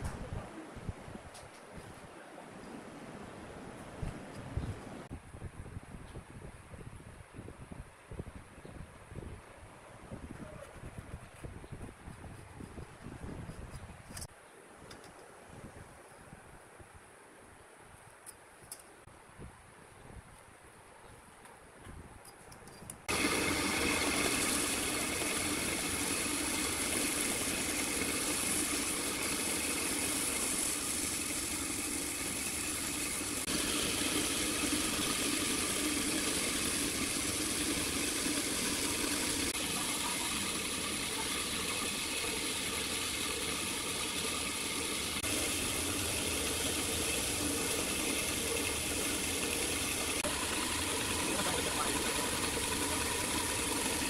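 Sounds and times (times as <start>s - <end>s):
band saw cutting wood: 23.1s - 54.0s.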